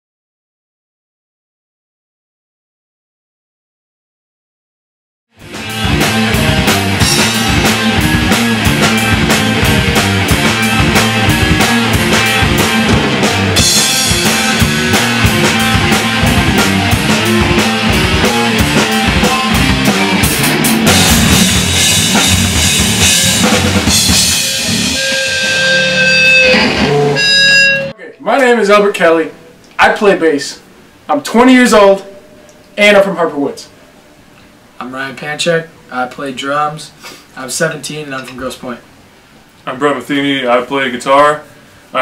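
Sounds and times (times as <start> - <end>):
rock music with drums and guitar: 5.4 - 27.9.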